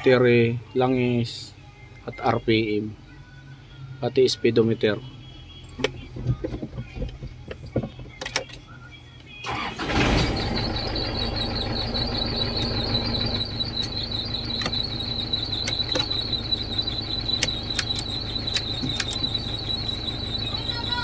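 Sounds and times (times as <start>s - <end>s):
diesel engine starting and idling: 9.4s - 21.0s
high-pitched squealing whine: 9.8s - 21.0s.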